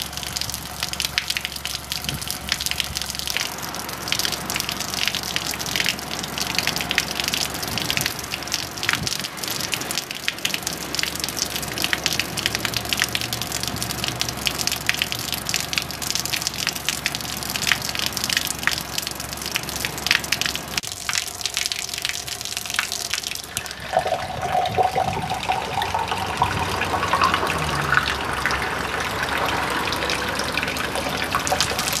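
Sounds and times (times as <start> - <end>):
water pouring and splashing: 0.0 - 32.0
water filling a glass: 21.1 - 32.0.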